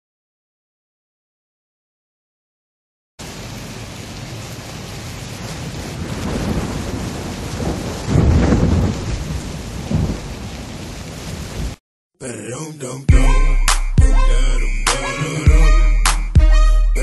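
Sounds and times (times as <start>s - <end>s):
steady rain: 3.2s - 11.8s
thunder rumble: 4.1s - 11.8s.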